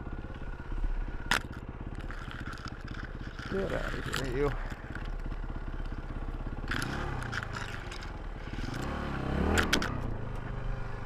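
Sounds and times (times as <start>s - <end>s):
branches scraping against bike: 0.6s - 6.0s, 6.6s - 8.9s
dirt bike engine revving: 6.6s - 10.0s.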